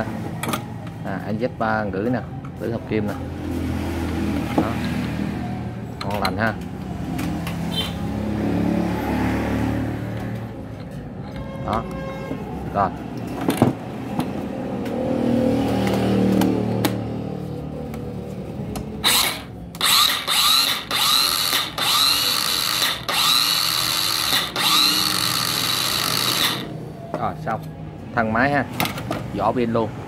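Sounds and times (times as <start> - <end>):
power cutter motor whirring: 19.0 - 26.8.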